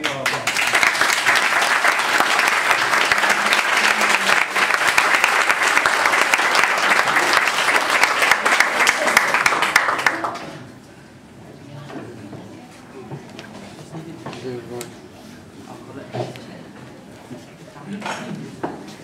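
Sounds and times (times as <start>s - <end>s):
people applauding: 0.0s - 10.7s.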